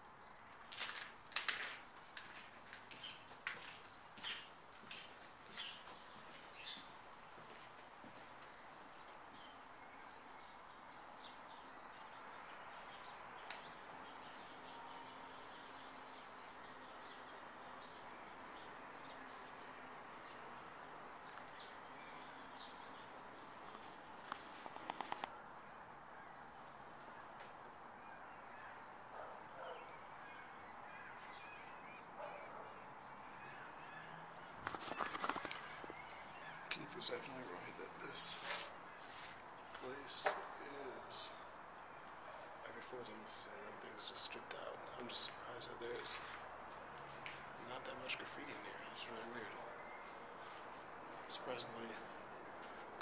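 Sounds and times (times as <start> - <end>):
small birds chirping: 0.0 - 53.0
faint bird calls: 20.2 - 46.4
sharp click: 24.6 - 25.3
steady low hiss: 34.9 - 46.3.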